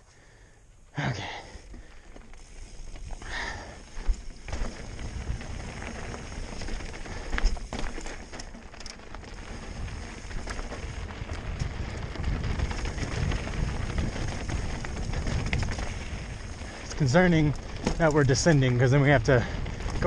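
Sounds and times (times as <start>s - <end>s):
bike clicks and rattles: 1.2s - 20.0s
bike rolling over rocky trail: 1.2s - 20.0s.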